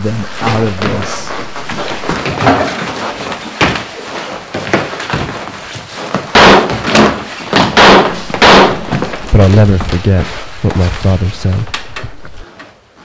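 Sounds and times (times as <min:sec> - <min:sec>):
loud sharp bangs: 0:06.3 - 0:09.8.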